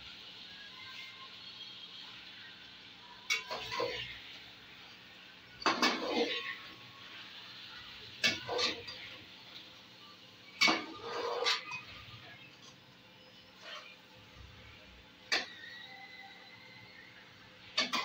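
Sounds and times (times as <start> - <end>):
spoon scraping metal pot: 10.6 - 11.8.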